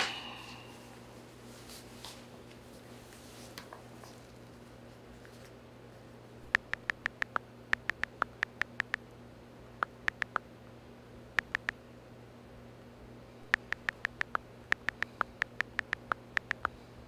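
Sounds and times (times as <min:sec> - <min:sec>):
faint steady hum: 0:00.0 - 0:17.0
touchscreen keyboard taps: 0:06.5 - 0:09.0, 0:09.8 - 0:10.4, 0:11.4 - 0:11.7, 0:13.4 - 0:16.7.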